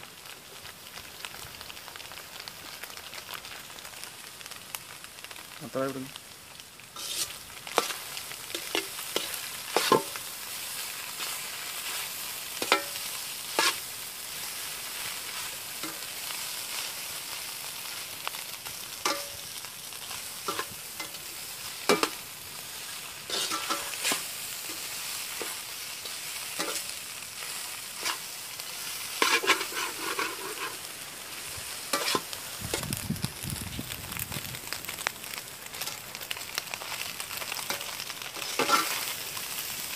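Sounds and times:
frying sizzle: 0:00.0 - 0:39.9
utensil scraping and knocking pan: 0:29.2 - 0:30.8.

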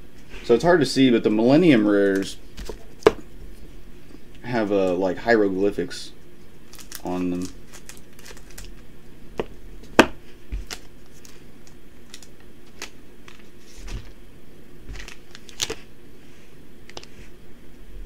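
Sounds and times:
cards being handled: 0:06.7 - 0:08.8, 0:09.4 - 0:14.2, 0:14.9 - 0:15.9
foil wrapper crinkling: 0:06.7 - 0:08.9, 0:10.2 - 0:14.2, 0:14.9 - 0:15.9.

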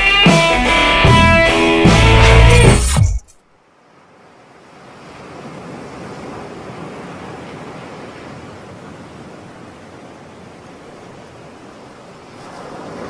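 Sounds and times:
small waves breaking on beach: 0:03.6 - 0:13.0.

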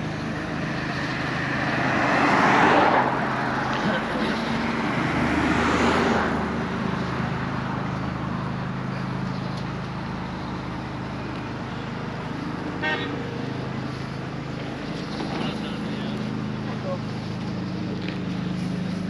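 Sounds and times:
low engine hum: 0:00.0 - 0:19.0
rush of vehicle noise: 0:00.0 - 0:19.0
vehicle horn toot: 0:12.7 - 0:13.5.

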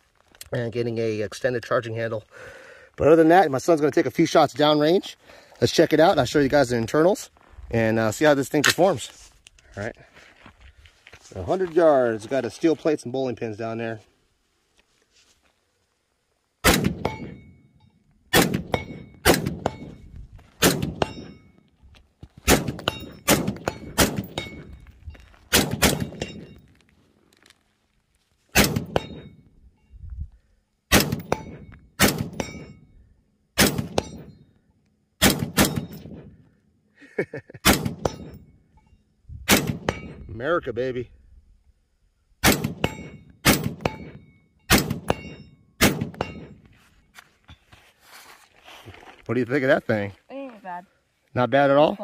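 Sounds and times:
rifle gunshots: 0:16.6 - 0:17.4, 0:18.3 - 0:20.0, 0:20.6 - 0:21.3, 0:22.4 - 0:24.6, 0:25.5 - 0:26.4, 0:28.6 - 0:29.3, 0:30.9 - 0:32.6, 0:33.6 - 0:34.2, 0:35.2 - 0:36.2, 0:37.6 - 0:38.2, 0:39.5 - 0:40.0, 0:42.4 - 0:44.1, 0:44.7 - 0:46.4
steel target plates ringing: 0:21.0 - 0:21.6, 0:22.8 - 0:24.9, 0:25.9 - 0:26.7, 0:28.8 - 0:29.5, 0:31.2 - 0:32.9, 0:33.9 - 0:34.4, 0:42.8 - 0:46.7.

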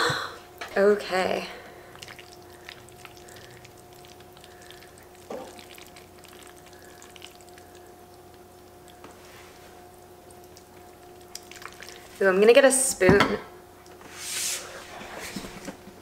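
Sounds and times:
faint steady hum: 0:00.0 - 0:16.0
fork twirling wet pasta: 0:01.9 - 0:07.9, 0:08.6 - 0:12.2.

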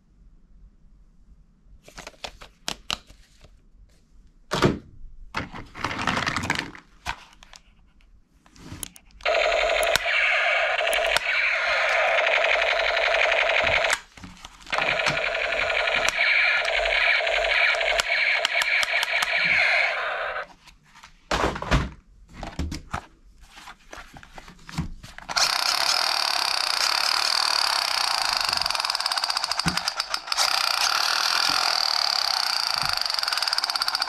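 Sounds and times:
plastic toy guns clicking and rattling: 0:05.7 - 0:06.9, 0:09.2 - 0:20.4, 0:25.2 - 0:34.0
electronic toy gun sound effect: 0:09.2 - 0:14.0, 0:14.7 - 0:20.5, 0:25.3 - 0:34.0.

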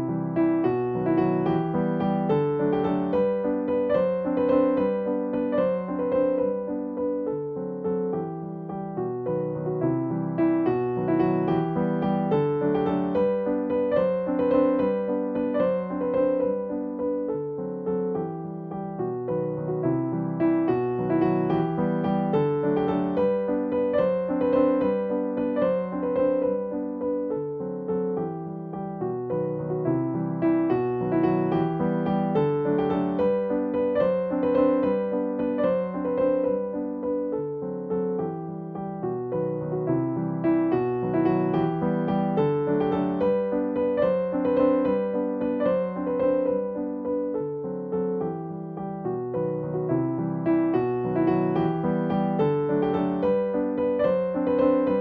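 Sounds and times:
gentle piano melody: 0:00.0 - 0:55.0
keyboard music with held notes: 0:00.0 - 0:55.0.

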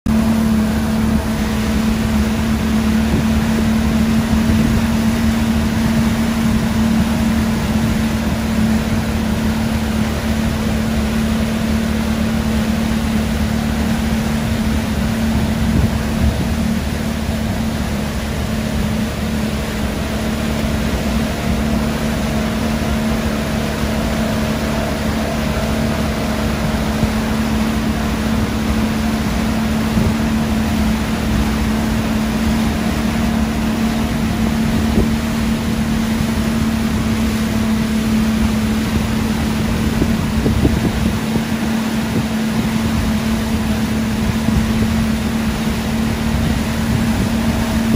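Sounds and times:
boat engine humming: 0:00.0 - 0:47.9
water rushing noise: 0:00.1 - 0:47.9.

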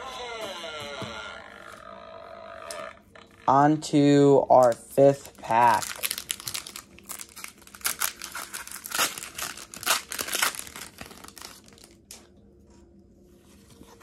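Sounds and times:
foil wrapper crinkling and tearing: 0:04.6 - 0:12.3.

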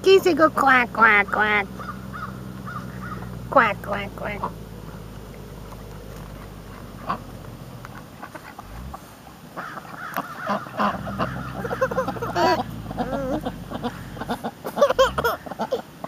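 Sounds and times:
ducks quacking: 0:01.0 - 0:05.0, 0:06.5 - 0:07.4, 0:09.5 - 0:16.0.

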